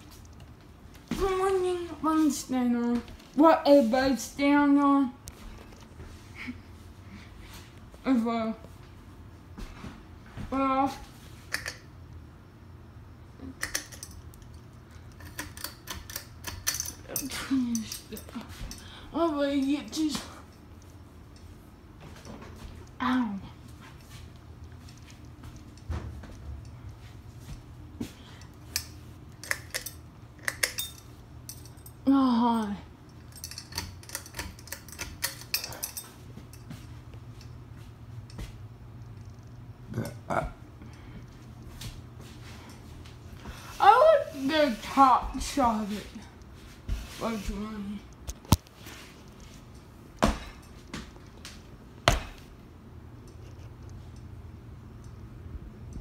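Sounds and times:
ceiling fan humming: 0.0s - 56.0s
light clicks and rattles: 33.1s - 37.6s.

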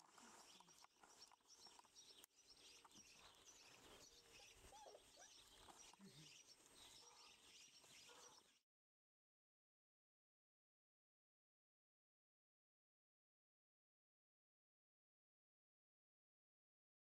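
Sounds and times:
small birds twittering: 0.0s - 8.6s.

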